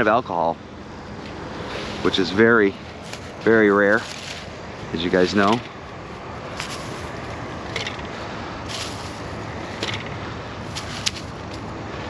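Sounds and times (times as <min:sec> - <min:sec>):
highway traffic hum: 0:00.0 - 0:12.0
short dry rustles: 0:01.3 - 0:05.7, 0:06.3 - 0:07.5, 0:08.1 - 0:09.4, 0:10.6 - 0:11.6.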